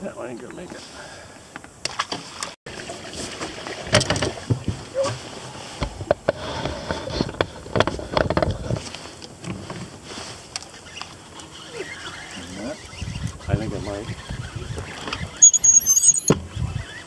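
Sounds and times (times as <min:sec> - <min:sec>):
wind rumble on microphone: 0:03.9 - 0:09.8, 0:12.6 - 0:17.0.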